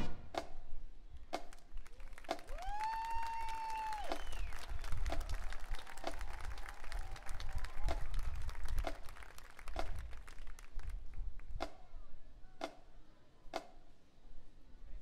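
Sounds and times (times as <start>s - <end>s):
audience applause: 1.8s - 11.0s.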